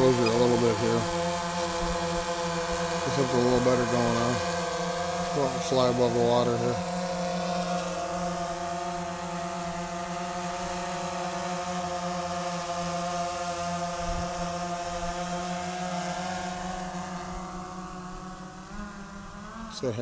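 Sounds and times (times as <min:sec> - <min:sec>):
drone propellers buzzing: 0:00.0 - 0:20.0.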